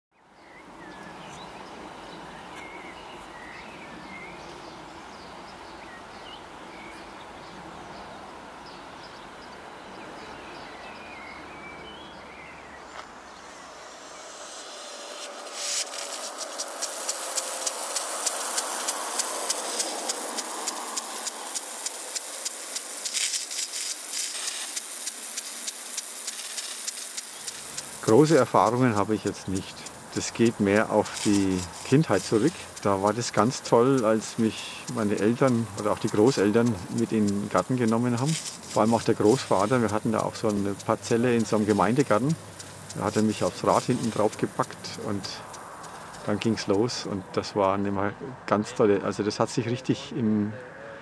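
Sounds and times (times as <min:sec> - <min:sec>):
sprinkler water spray hiss: 0:12.9 - 0:47.8
sprinkler arm ticking: 0:14.4 - 0:47.7.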